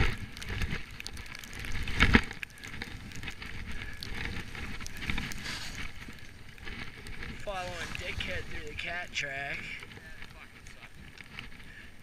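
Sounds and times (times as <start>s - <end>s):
skis hissing through powder snow: 4.4s - 6.1s, 7.4s - 9.1s
ski swooshes: 5.1s - 6.0s, 7.4s - 8.8s.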